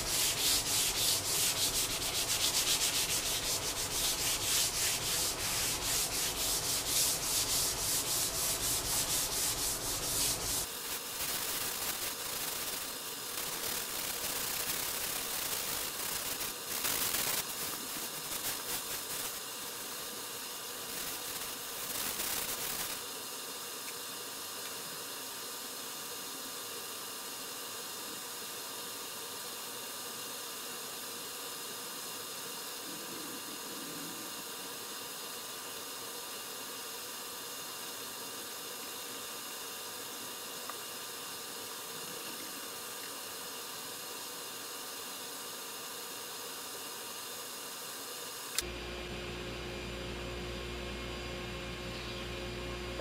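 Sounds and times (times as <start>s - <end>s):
hand sanding strokes: 0.0s - 10.7s
faint steady hiss: 0.0s - 53.0s.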